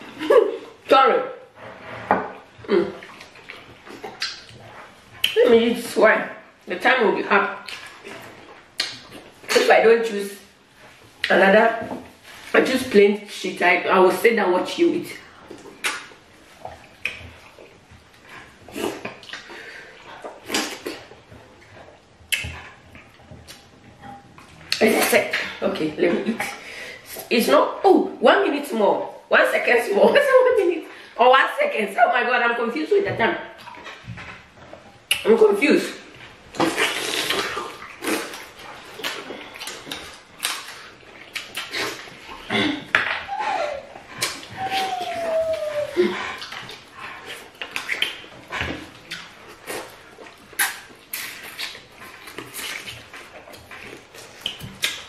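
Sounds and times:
people eating with wet smacking: 2.1 - 13.5, 14.1 - 27.8, 33.1 - 55.0
wet eating smacking slurping: 2.3 - 5.4, 36.2 - 55.0.

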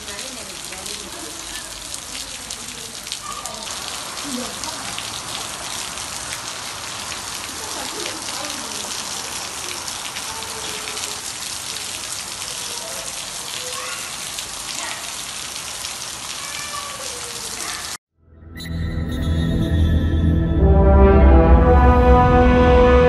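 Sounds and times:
heavy rain on balcony floor: 0.0 - 18.0.

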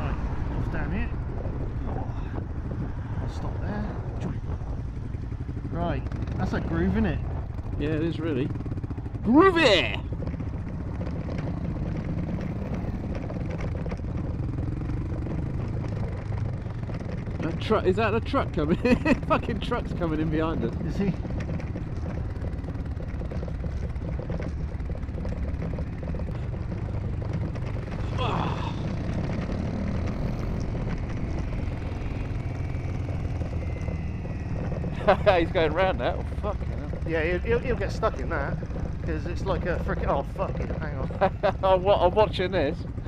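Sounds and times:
motorcycle engine running: 0.0 - 43.0
stones and suspension clatter: 9.8 - 43.0.

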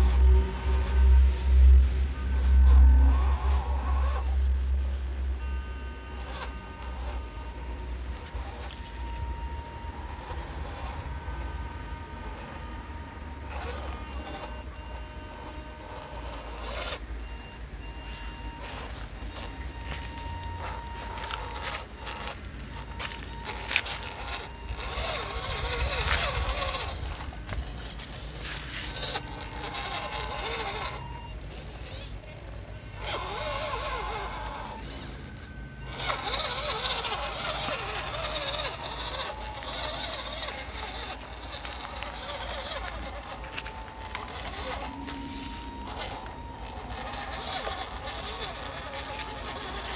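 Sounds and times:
low rumble: 0.0 - 5.4
electric motor whine: 0.0 - 49.9
tyres crunching over gravel: 6.3 - 49.9.

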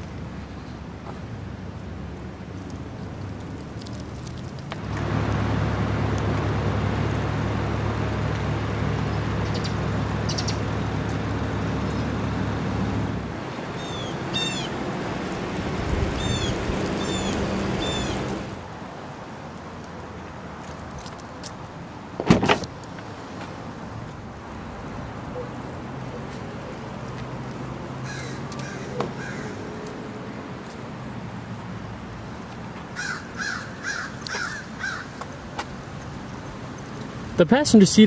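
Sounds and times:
bird chirping: 9.1 - 10.6, 13.7 - 14.8, 16.2 - 18.3.

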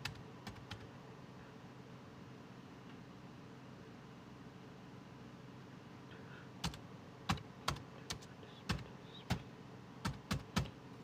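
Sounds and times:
laptop keyboard typing: 0.0 - 0.9, 6.6 - 10.8.

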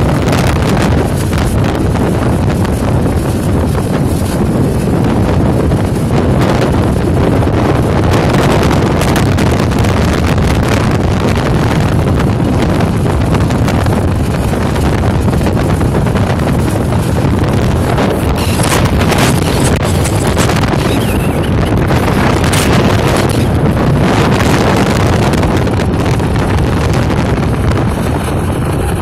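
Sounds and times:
outboard motor running: 0.0 - 29.0
wind buffeting microphone: 0.0 - 29.0
wake rushing: 13.0 - 29.0.

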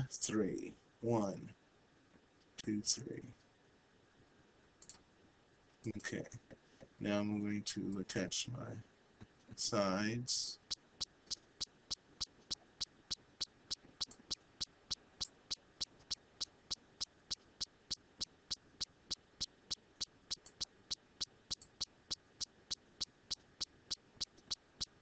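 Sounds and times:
ticking clicks: 10.6 - 25.0.

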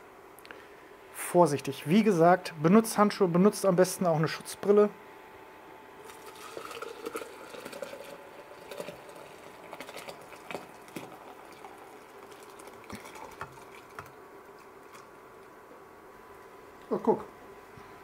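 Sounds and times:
liquid splashing into jug: 6.0 - 15.5.

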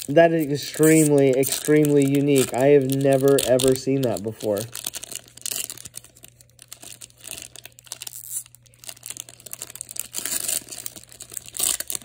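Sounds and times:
card packaging rustling and crinkling: 0.0 - 12.0.

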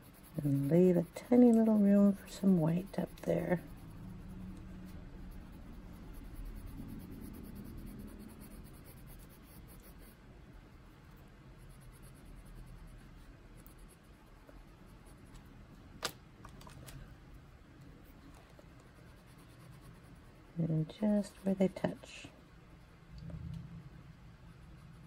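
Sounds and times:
pencil scratching on paper: 0.0 - 10.2, 11.0 - 15.4, 18.0 - 22.3, 24.4 - 25.0.

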